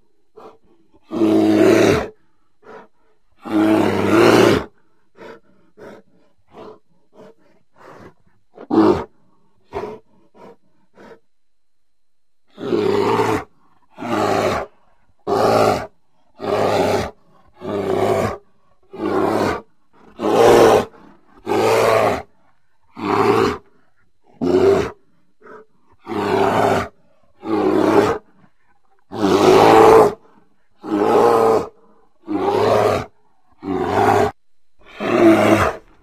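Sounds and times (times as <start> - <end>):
creature roars: 12.5 - 14.7, 15.3 - 22.3, 24.4 - 28.3, 29.1 - 35.9.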